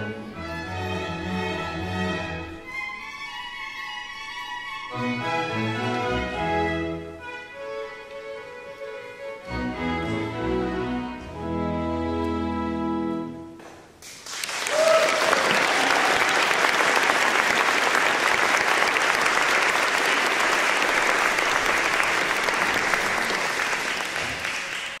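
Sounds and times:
audience applause: 0:14.0 - 0:25.0.

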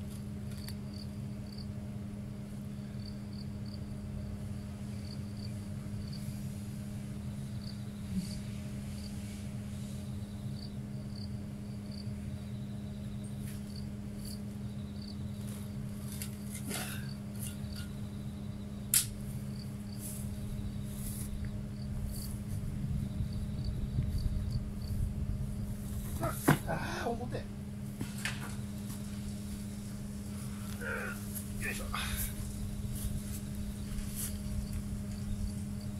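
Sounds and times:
steady low hum: 0:00.0 - 0:35.9
cricket chirping: 0:00.5 - 0:01.8, 0:02.6 - 0:06.4, 0:07.2 - 0:27.4, 0:28.4 - 0:35.9.

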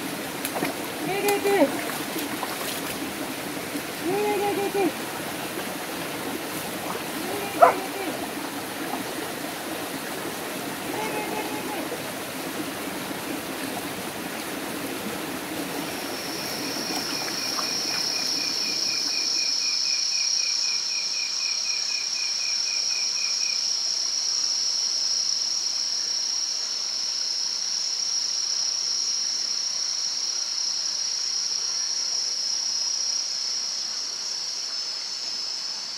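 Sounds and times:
stream running over rocks: 0:00.0 - 0:19.6
night insects chorus: 0:00.0 - 0:35.9.

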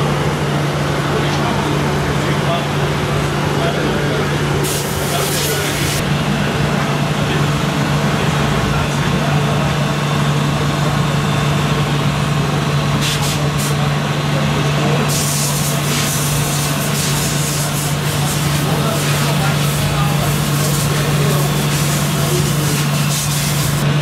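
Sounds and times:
low diesel-like engine drone: 0:00.0 - 0:24.0
chatter of voices: 0:00.9 - 0:23.8.

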